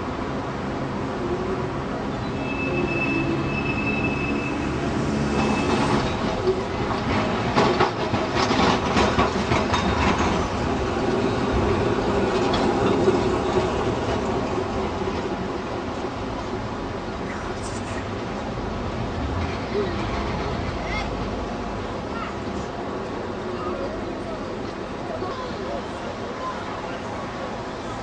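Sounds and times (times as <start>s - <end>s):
electric tram rumbling: 0.0s - 28.0s
high wheel squeal: 2.2s - 6.2s
wheels clicking on track: 5.3s - 15.4s.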